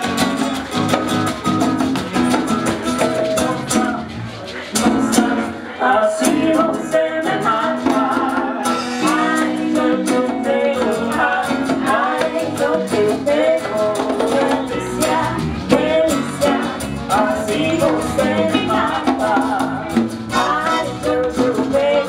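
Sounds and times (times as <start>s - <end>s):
drum kit: 0.0s - 22.0s
guitars: 0.0s - 22.0s
woman singing into a microphone: 5.2s - 22.0s.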